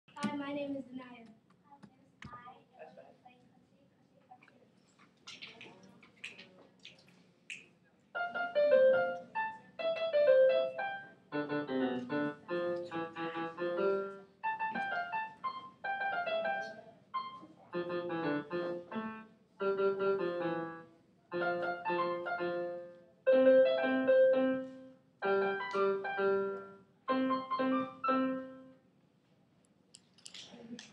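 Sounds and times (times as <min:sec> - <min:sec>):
electronic keyboard melody: 0:08.2 - 0:28.8.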